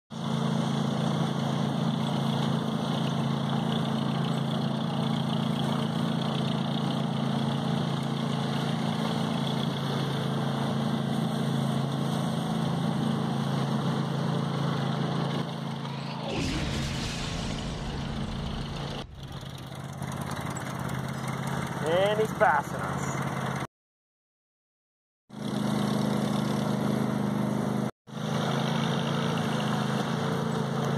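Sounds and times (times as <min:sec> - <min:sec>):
low rumble: 0:15.6 - 0:20.8.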